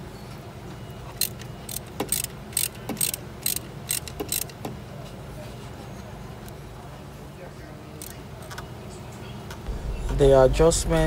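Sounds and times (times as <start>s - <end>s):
ratchet wrench clicking: 1.2s - 4.7s.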